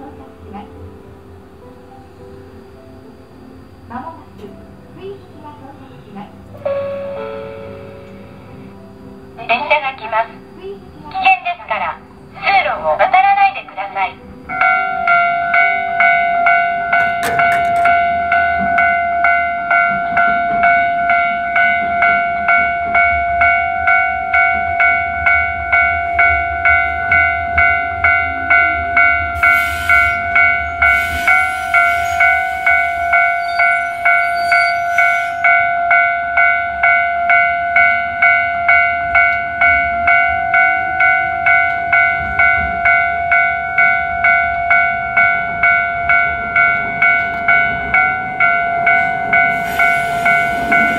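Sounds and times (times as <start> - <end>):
train rumbling: 0.0 - 50.9
crossing warning bell ringing: 6.6 - 10.5, 11.2 - 50.9
air brake hiss: 29.4 - 33.4, 49.6 - 50.9.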